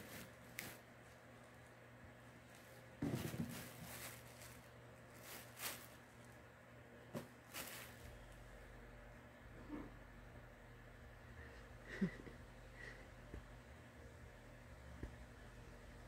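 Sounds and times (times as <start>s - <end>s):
faint rustles and bumps: 2.4s - 6.3s, 7.1s - 8.3s.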